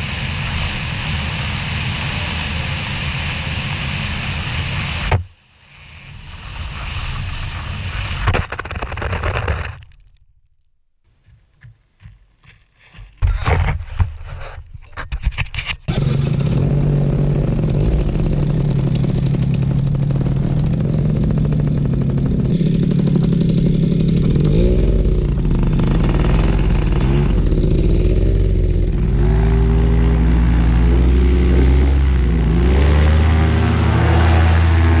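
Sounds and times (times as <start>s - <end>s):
paramotor engine drone: 15.9s - 35.0s.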